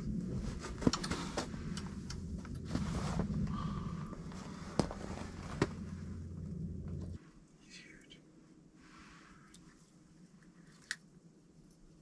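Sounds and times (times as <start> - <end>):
steady low hum: 0.0 - 12.0
knocks and rustles: 4.2 - 6.2.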